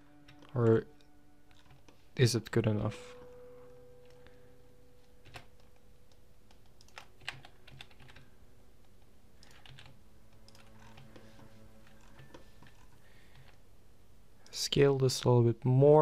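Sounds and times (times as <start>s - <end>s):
low steady hum: 0.0s - 16.0s
computer keyboard and mouse clicks: 5.2s - 13.6s.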